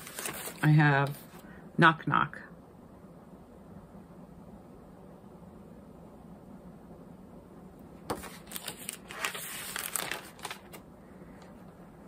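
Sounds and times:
paper and plastic rustling: 0.0 - 1.4, 8.1 - 11.5.

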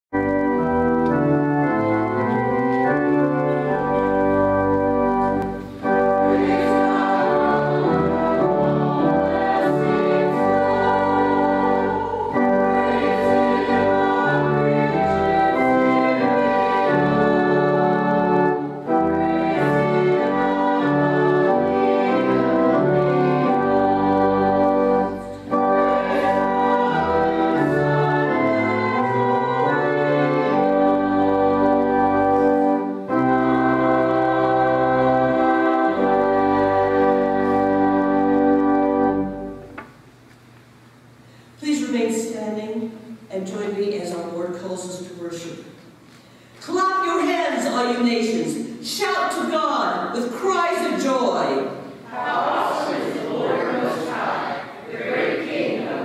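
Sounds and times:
church organ sustained chords: 0.2 - 39.8.

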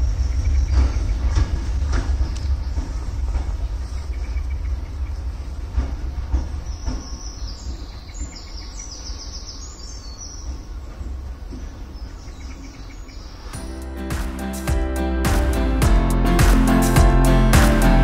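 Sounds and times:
diesel train rumble: 0.0 - 8.8, 13.6 - 18.0
small birds chirping: 6.4 - 13.6.

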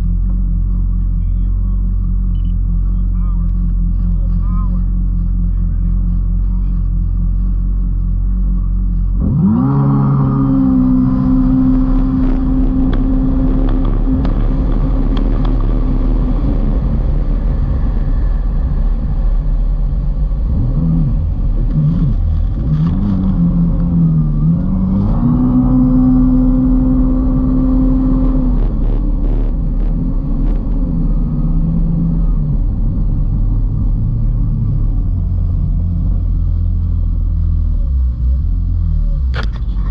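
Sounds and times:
jet ski engine revving: 8.7 - 16.4.

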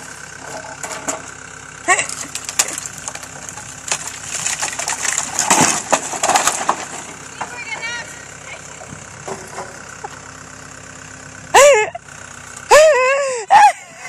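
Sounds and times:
diesel engine running: 0.0 - 14.0
wood creaking and cracking: 1.9 - 7.6.

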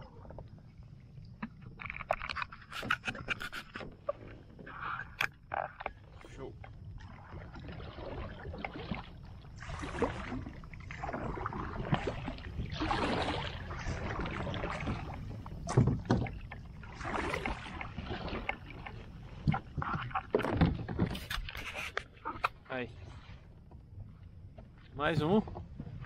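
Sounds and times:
water sloshing around kayak: 0.0 - 26.0.

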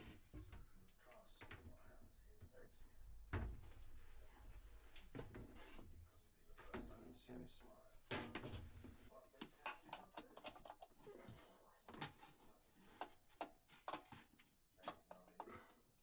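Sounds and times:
plastic hoses knocking and rubbing: 8.1 - 15.6.

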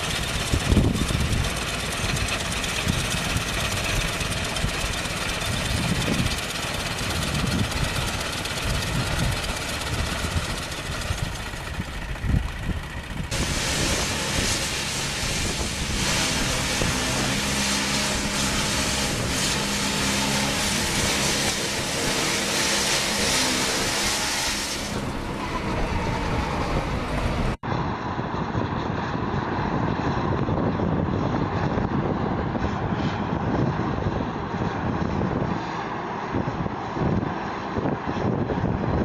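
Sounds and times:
combine harvester unloading grain: 0.0 - 27.6
tractor engine humming: 0.0 - 27.7.

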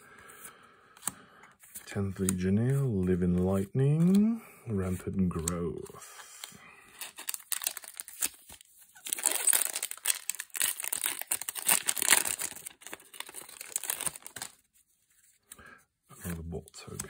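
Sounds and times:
foil wrapper crinkling and tearing: 6.9 - 14.6.

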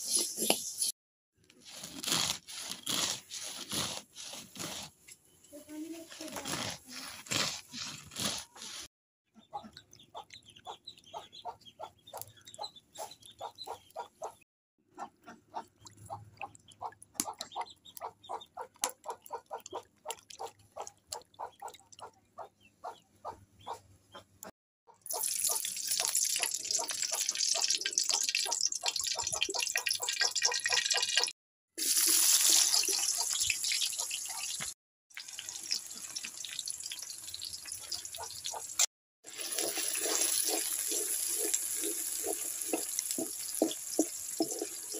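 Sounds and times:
water splashing and dripping: 25.1 - 44.9
onions frying in oil: 25.2 - 29.1, 31.8 - 44.9
oil sizzling in a hot wok: 31.8 - 38.5, 39.3 - 44.9
wooden spatula stirring: 39.4 - 44.9.

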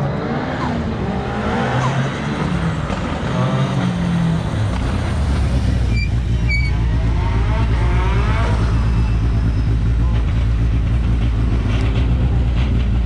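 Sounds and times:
car engine blipping and idling: 4.0 - 13.0.

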